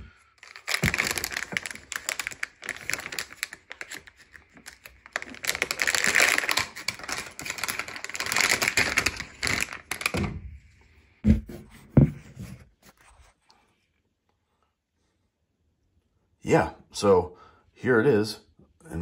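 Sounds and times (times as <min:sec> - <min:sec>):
packaging crinkling: 0:00.4 - 0:10.2.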